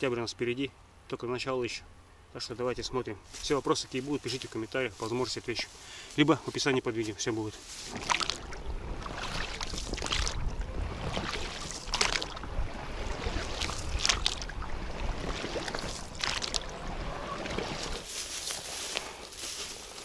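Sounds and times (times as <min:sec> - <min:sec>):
wind rumble on microphone: 0:07.9 - 0:18.1.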